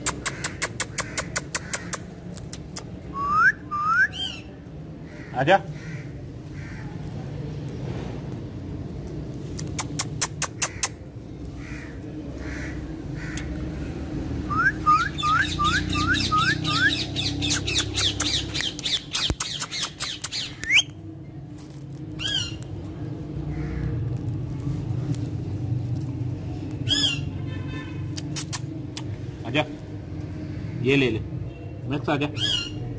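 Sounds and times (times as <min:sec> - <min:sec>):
parakeet clicks: 0:00.0 - 0:03.0, 0:09.4 - 0:11.0, 0:17.4 - 0:21.0
parakeet calling and squawking: 0:04.1 - 0:04.5, 0:09.8 - 0:21.0, 0:22.1 - 0:22.8, 0:26.8 - 0:28.8, 0:32.3 - 0:32.9
steady low rumble: 0:17.4 - 0:31.4.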